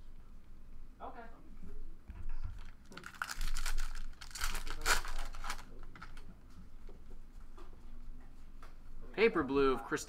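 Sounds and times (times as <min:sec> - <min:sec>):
foil wrapper tearing and crinkling: 0:02.6 - 0:06.2.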